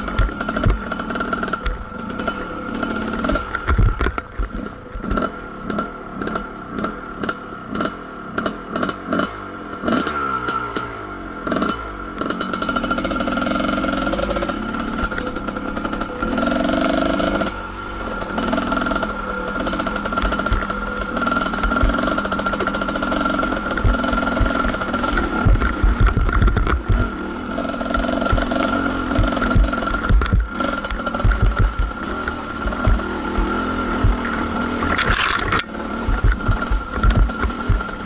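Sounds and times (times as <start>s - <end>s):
dirt bike engine: 0.0s - 38.0s
sharp clatters: 12.2s - 38.0s.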